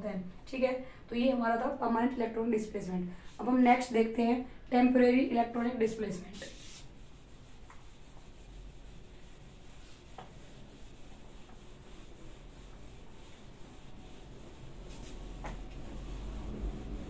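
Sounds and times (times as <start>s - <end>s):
eraser rubbing on whiteboard: 5.9s - 17.0s.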